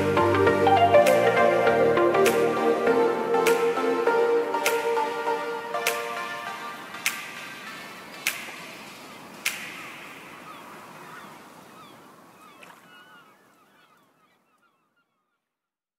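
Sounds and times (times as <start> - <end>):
background music: 0.0 - 10.9
gliding chirp-like tones: 0.0 - 15.0.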